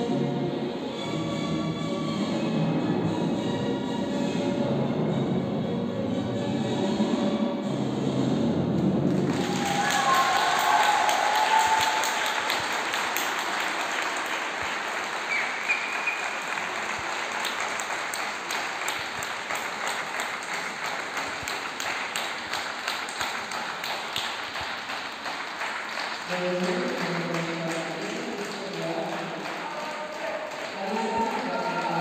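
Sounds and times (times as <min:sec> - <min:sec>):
music: 0:00.0 - 0:10.1
audience applauding: 0:09.1 - 0:32.0.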